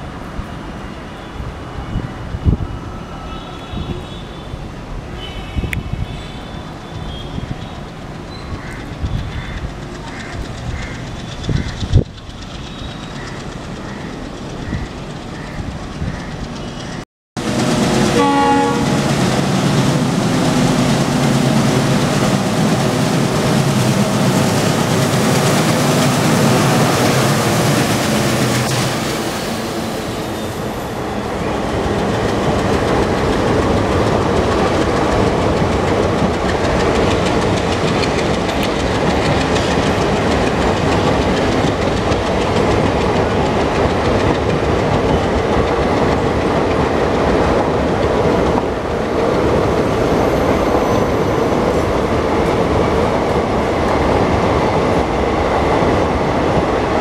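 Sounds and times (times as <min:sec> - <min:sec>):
diesel locomotive engine: 0:00.0 - 0:57.0
train coaches rumbling: 0:00.0 - 0:57.0
wheels clicking over rail joints: 0:07.3 - 0:17.0, 0:31.8 - 0:50.9
locomotive horn: 0:17.7 - 0:19.3.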